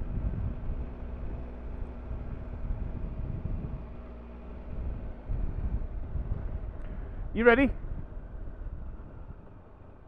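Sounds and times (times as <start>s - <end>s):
wind rumble on microphone: 0.0s - 10.0s.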